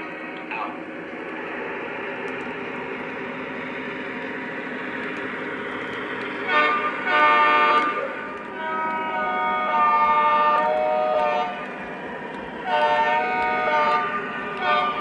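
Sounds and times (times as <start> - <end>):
model locomotive rumbling: 0.0 - 15.0
locomotive horn blasts: 6.4 - 11.6, 12.6 - 15.0.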